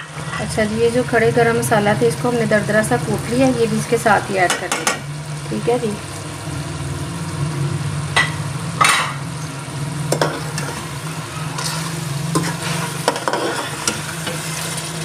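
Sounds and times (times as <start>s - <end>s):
meat sizzling in a pot: 0.0s - 15.0s
steady low hum: 0.0s - 15.0s
metal spatula scraping a pot: 11.5s - 15.0s.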